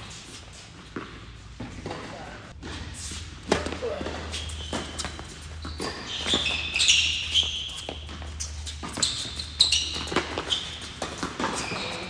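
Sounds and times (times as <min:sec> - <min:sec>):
sneakers squeaking on court: 0:00.0 - 0:12.0
racket hitting ball: 0:03.4 - 0:06.5.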